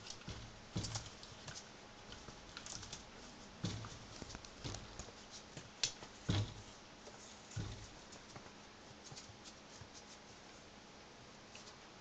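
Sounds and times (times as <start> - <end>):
claws scrabbling on wooden floor: 0.0 - 10.3
knocks on wooden floor: 3.6 - 5.1, 6.2 - 6.7, 7.6 - 8.0.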